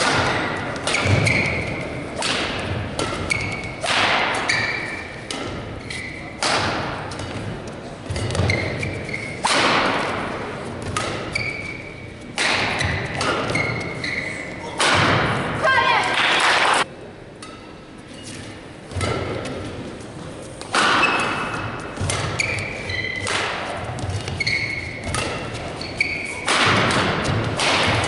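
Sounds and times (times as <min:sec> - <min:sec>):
rackets striking shuttlecock: 0:00.0 - 0:10.2, 0:10.8 - 0:11.5, 0:12.2 - 0:14.0, 0:20.6 - 0:28.0
shoes squeaking on court: 0:00.6 - 0:02.0, 0:03.0 - 0:03.8, 0:04.4 - 0:06.4, 0:07.1 - 0:09.4, 0:10.6 - 0:14.7, 0:20.5 - 0:26.5.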